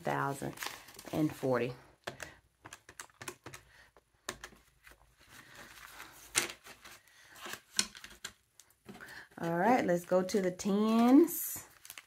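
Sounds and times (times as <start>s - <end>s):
banknotes rustling: 2.6s - 12.0s.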